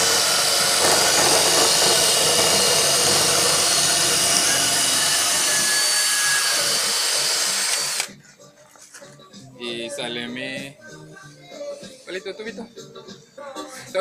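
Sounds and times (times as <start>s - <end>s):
wood scraping against steel: 0.0s - 6.0s
cordless drill running: 0.0s - 8.1s.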